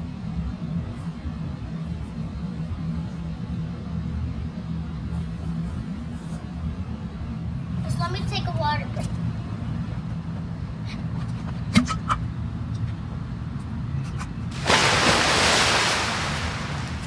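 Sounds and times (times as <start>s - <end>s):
loud rushing hiss: 14.5s - 17.0s.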